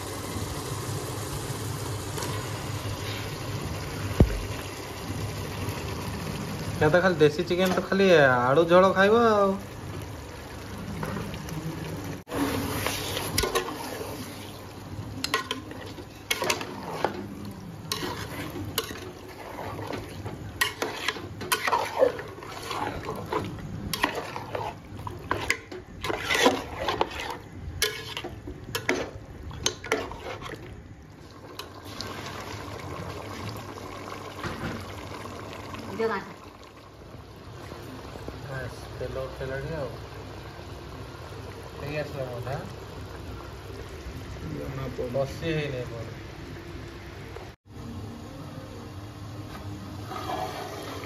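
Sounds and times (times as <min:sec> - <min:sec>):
spatula scraping a metal pot: 0:15.2 - 0:30.7, 0:50.0 - 0:51.0.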